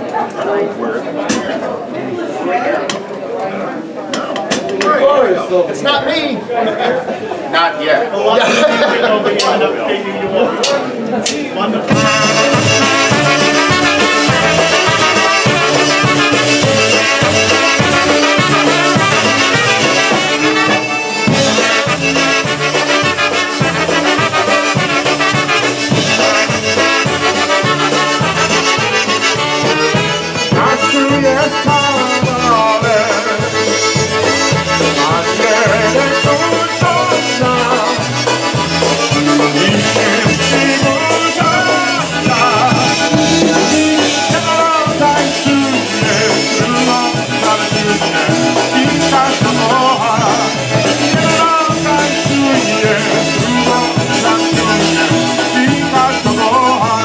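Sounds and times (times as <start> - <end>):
accordion: 8.2 - 57.0
trumpets and saxophone: 8.4 - 9.4, 11.9 - 57.0
drum kit: 10.6 - 57.0
steady bass: 11.9 - 57.0.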